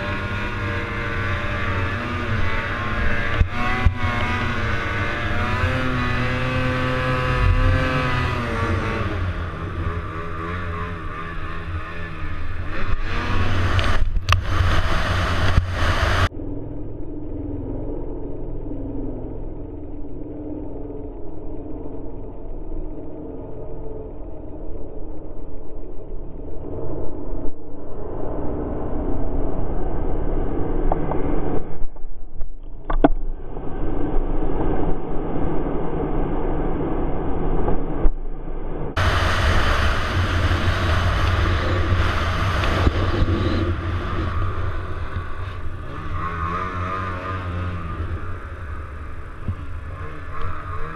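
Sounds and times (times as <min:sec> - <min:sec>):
rushing noise: 0:00.0 - 0:16.6, 0:33.1 - 0:50.9
snowmobile engine under throttle: 0:00.0 - 0:25.0, 0:28.2 - 0:31.7, 0:38.9 - 0:50.9.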